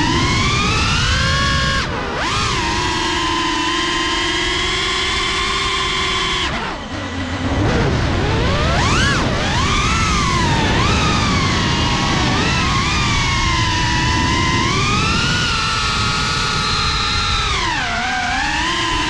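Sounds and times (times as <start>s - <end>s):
rushing noise: 0.0s - 2.3s, 6.6s - 16.8s
drone motors whining: 0.0s - 19.0s.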